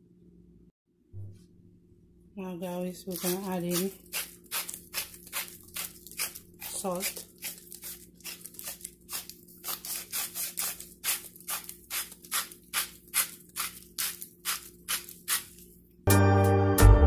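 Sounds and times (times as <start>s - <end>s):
salt grinder grinding: 3.1s - 15.7s.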